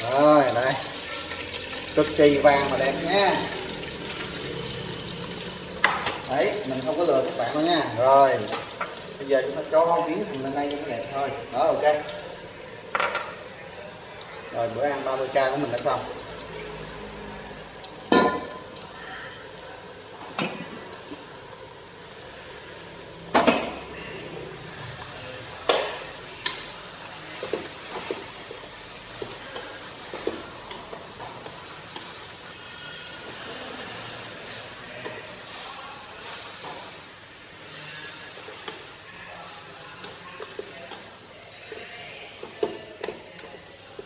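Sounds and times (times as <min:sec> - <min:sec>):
greens sizzling in hot oil: 0:00.0 - 0:44.0
utensils clanking on cookware: 0:18.0 - 0:18.9, 0:27.4 - 0:32.4.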